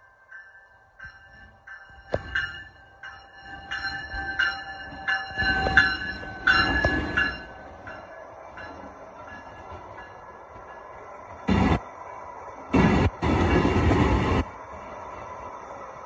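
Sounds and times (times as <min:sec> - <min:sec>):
warning bell pinging: 0:00.0 - 0:10.4
passenger train passing: 0:00.0 - 0:16.0.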